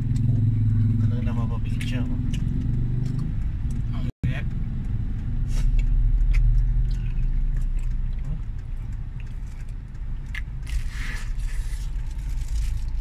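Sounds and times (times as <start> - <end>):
car engine idling: 0.0 - 13.0
person biting and chewing: 5.5 - 13.0.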